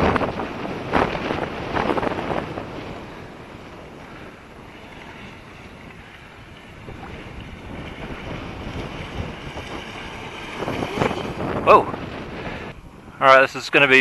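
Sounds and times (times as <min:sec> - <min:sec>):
model jet boat rushing: 0:00.0 - 0:14.0
wind rumbling on microphone: 0:00.0 - 0:14.0.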